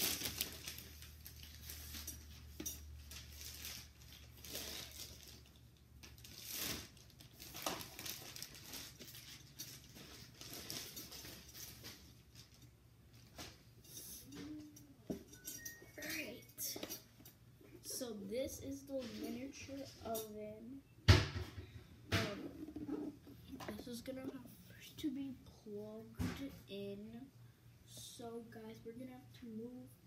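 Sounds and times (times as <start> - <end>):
plastic wrapping crinkling: 0.0 - 13.4.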